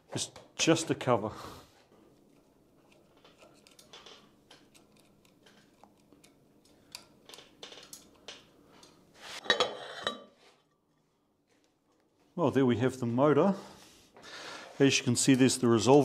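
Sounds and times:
metal parts clicking and knocking: 2.9s - 8.9s.

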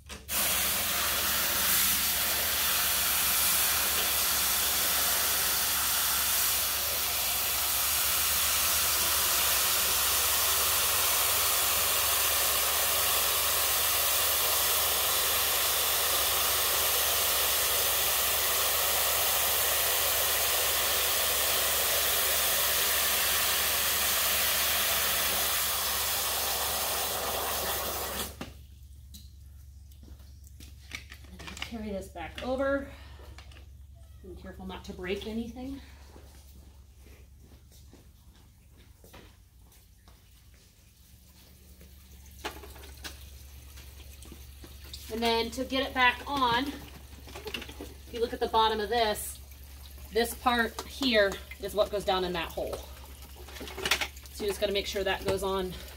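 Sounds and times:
hose water pouring into filter: 0.3s - 28.5s, 40.4s - 55.9s.

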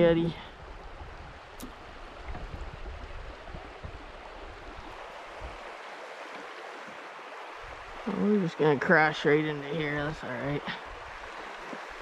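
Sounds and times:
river water rushing over rocks: 2.8s - 12.0s.

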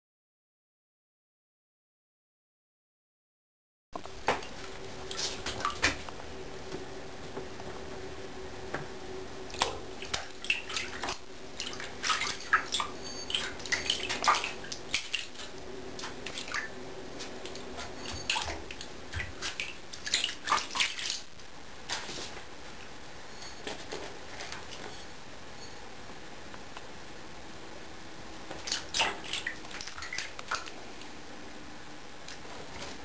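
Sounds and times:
paw splashing water: 9.5s - 16.8s, 17.4s - 21.3s, 28.6s - 30.8s.

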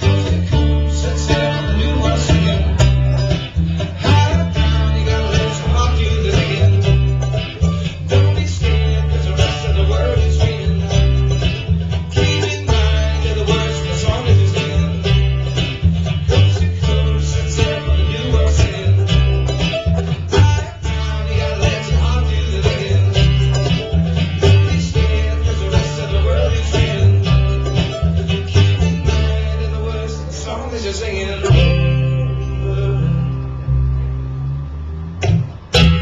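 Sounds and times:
bright picked lead line: 0.0s - 5.5s
strummed acoustic guitar: 0.0s - 36.0s
upright bass plucking: 0.0s - 36.0s.

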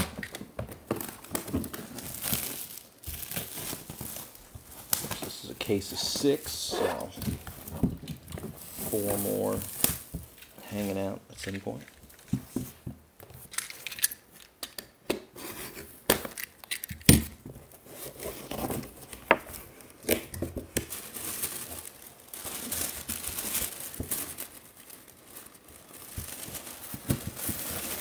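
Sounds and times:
tissue paper crinkling: 1.0s - 7.7s, 8.3s - 11.0s, 20.7s - 28.0s.

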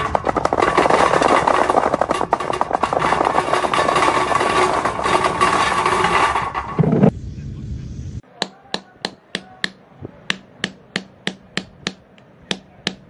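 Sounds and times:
golf balls clattering into metal tray: 0.0s - 7.0s.

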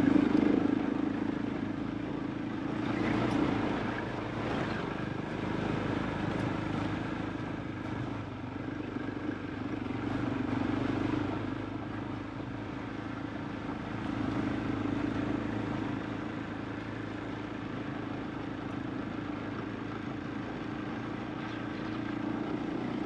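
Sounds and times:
motorcycle engine running: 0.0s - 23.0s.

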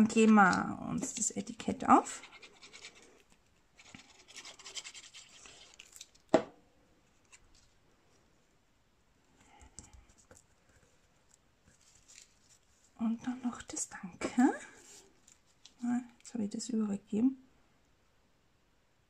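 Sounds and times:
light rubbing on paper: 2.0s - 5.8s
paper rustling: 2.6s - 6.3s, 9.8s - 13.0s.

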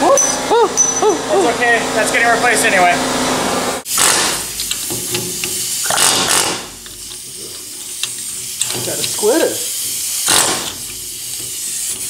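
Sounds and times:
aerosol spray hissing: 7.0s - 12.0s.

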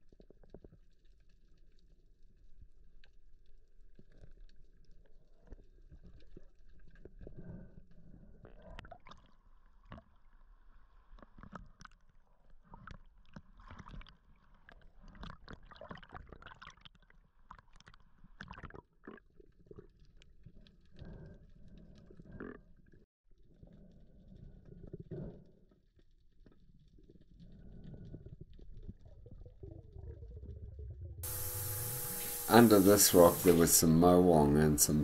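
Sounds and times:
underwater clicks and crackles: 0.0s - 31.2s
muffled underwater rumble: 26.6s - 35.0s.

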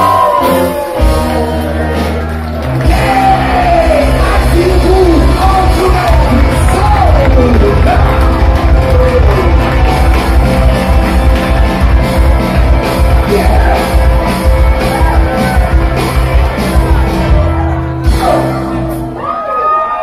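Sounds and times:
live rock band playing: 0.0s - 19.6s
person singing: 2.8s - 10.4s, 12.8s - 19.2s.

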